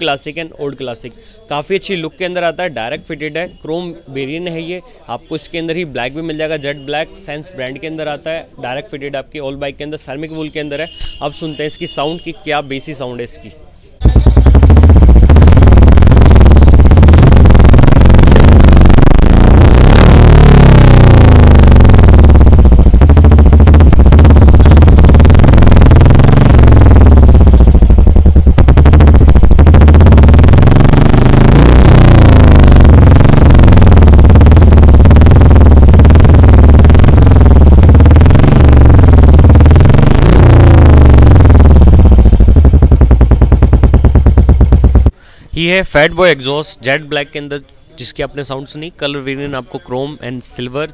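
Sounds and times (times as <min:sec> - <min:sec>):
motorcycle engine revving: 0:14.0 - 0:45.2.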